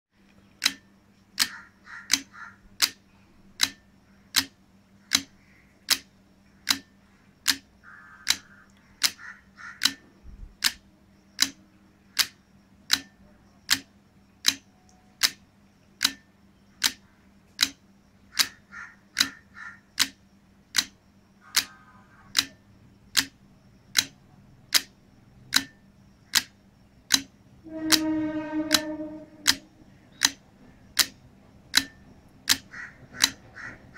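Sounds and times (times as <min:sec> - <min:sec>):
relays clicking: 0:00.2 - 0:10.8, 0:11.4 - 0:15.4, 0:16.0 - 0:33.9
steady pitched tone: 0:27.6 - 0:29.9.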